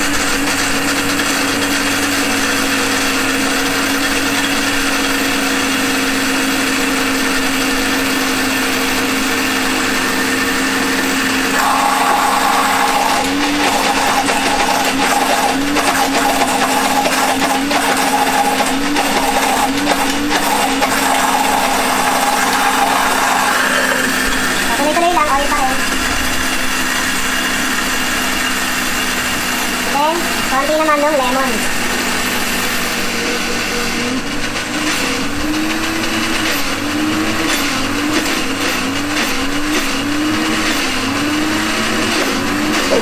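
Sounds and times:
blender motor running: 0.0s - 43.0s.

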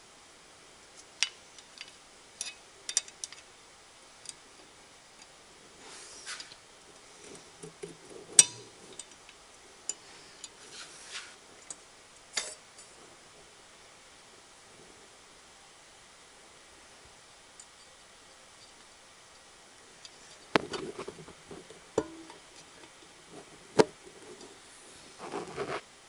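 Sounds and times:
light handling rustle: 5.8s - 11.8s.

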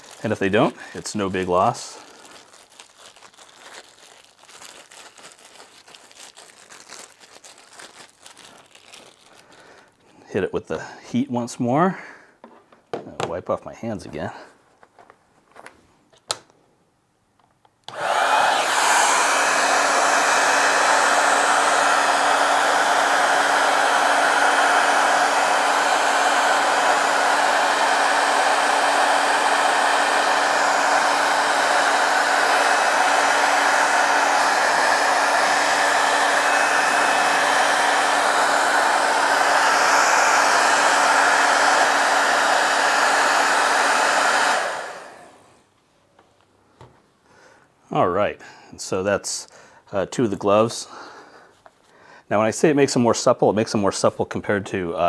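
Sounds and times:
blower winding down: 17.9s - 45.6s
hot-air blower running: 17.9s - 45.6s.

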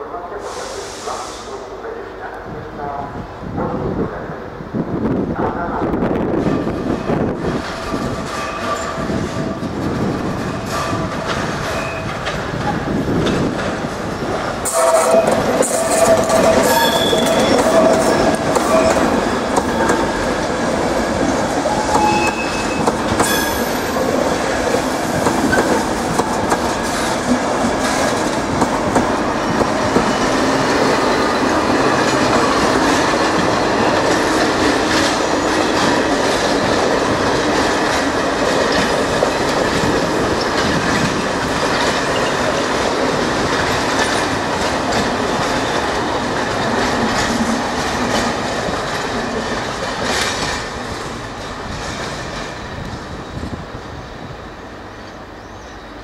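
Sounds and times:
train wheels clacking: 6.4s - 52.9s
wheel flange squeal: 14.8s - 19.0s, 21.8s - 23.7s.

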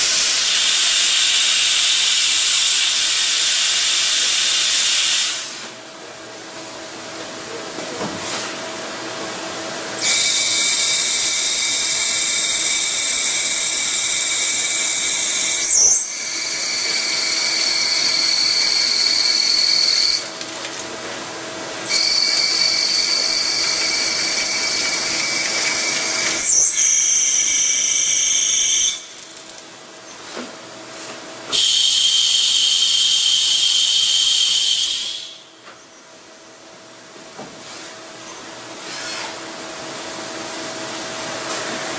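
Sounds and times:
lathe cutting whine: 10.0s - 20.4s, 21.8s - 29.2s.

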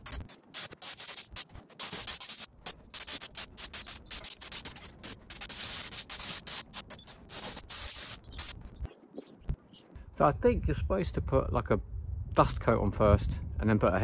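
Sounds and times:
spray gun hissing bursts: 0.0s - 8.6s.

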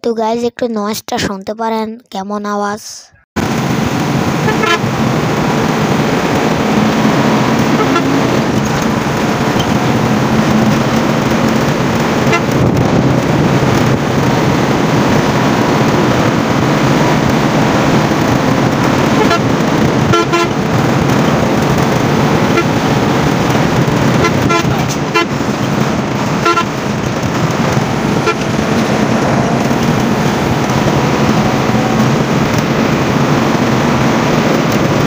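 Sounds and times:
bus engine and road noise: 2.7s - 35.0s
vehicle horn toots: 4.4s - 5.0s, 6.8s - 13.0s, 19.0s - 21.4s, 22.0s - 32.4s.

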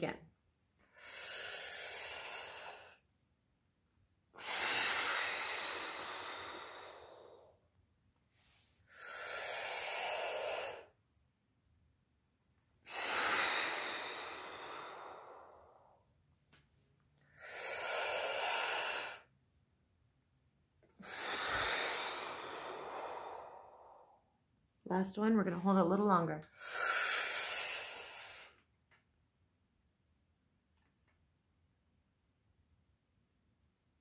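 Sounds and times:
woman breathing deeply through mouth: 0.8s - 3.1s, 4.3s - 11.0s, 12.8s - 19.4s, 20.8s - 24.5s, 26.5s - 28.7s.

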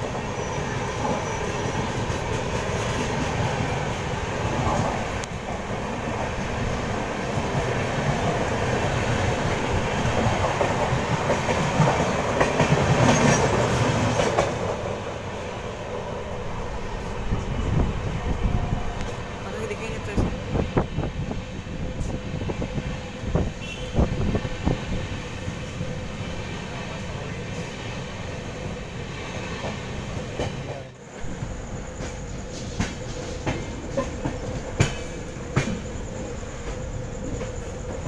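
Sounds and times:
train rumble: 0.0s - 38.0s
wheels clattering on rails: 6.2s - 15.1s, 29.4s - 38.0s.

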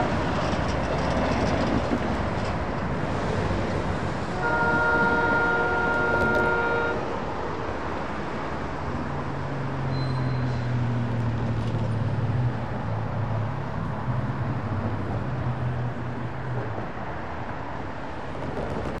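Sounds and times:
traffic noise: 0.0s - 19.0s.

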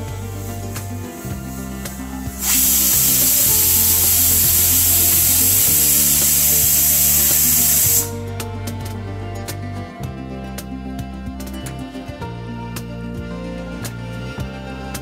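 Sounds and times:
background music: 0.0s - 15.0s
pressure cooker hissing steam: 1.9s - 8.2s.

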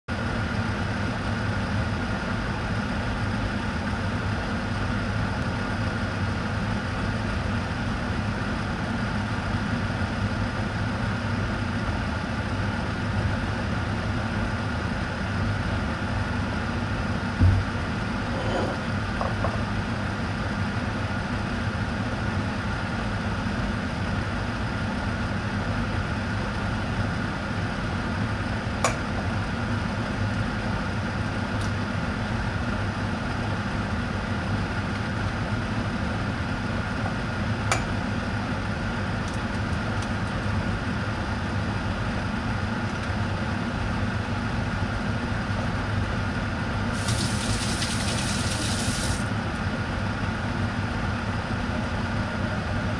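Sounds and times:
kitchen appliance humming: 46.7s - 49.7s.

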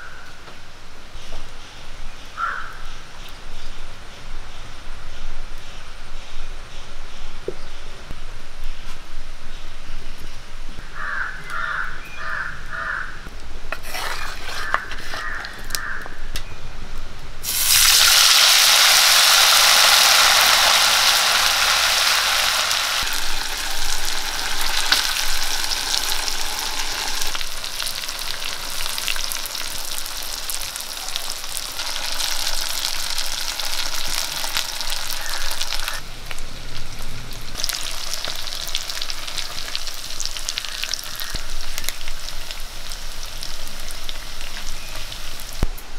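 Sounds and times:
wooden spatula stirring: 13.8s - 15.5s
fish sizzling in hot oil: 17.4s - 45.6s.

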